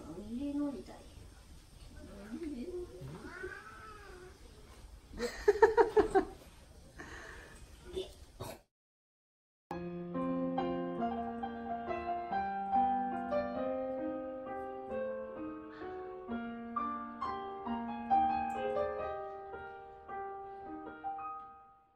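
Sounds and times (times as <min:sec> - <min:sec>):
gentle piano music: 0:09.7 - 0:21.9.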